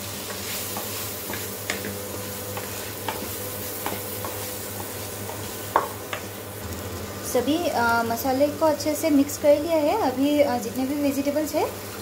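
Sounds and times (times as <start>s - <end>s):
spices sizzling in oil: 0.0s - 12.0s.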